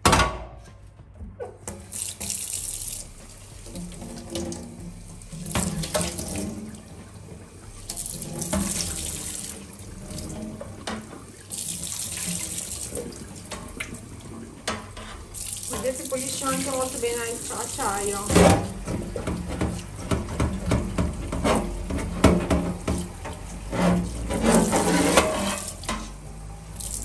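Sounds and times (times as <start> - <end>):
tap water splashing into sink: 1.7 - 26.1
knocks in sink: 18.2 - 23.1.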